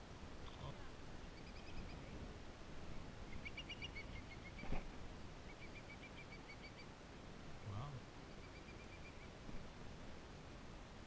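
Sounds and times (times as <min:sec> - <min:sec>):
bird chirping: 0:01.3 - 0:02.2, 0:03.2 - 0:04.8, 0:05.4 - 0:06.9, 0:08.3 - 0:09.4.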